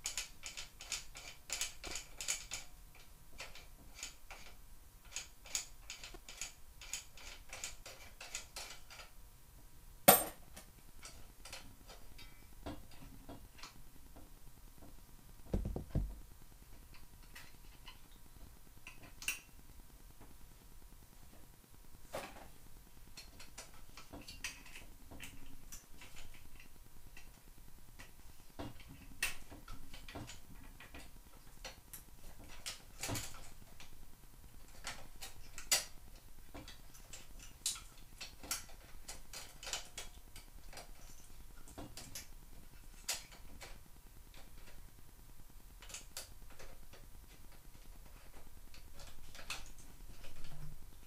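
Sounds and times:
loud knock: 0:15.5 - 0:16.2.

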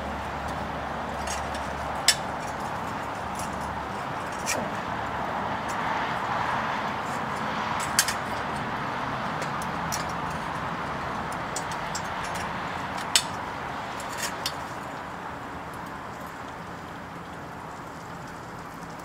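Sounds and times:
furnace burner rushing: 0:00.0 - 0:16.4
metal tongs clinking: 0:07.4 - 0:08.7, 0:11.4 - 0:13.4.

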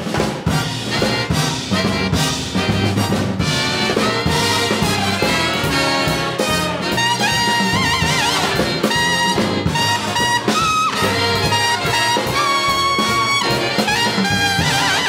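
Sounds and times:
big jazz band playing: 0:00.0 - 0:15.0.

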